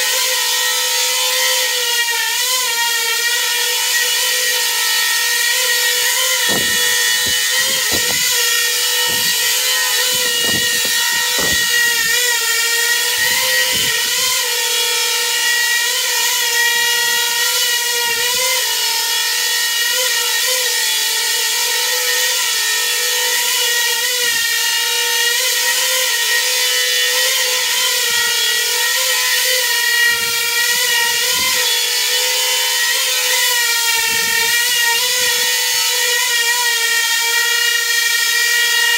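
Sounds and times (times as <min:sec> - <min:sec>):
drone propellers whining buzz: 0:06.0 - 0:14.4.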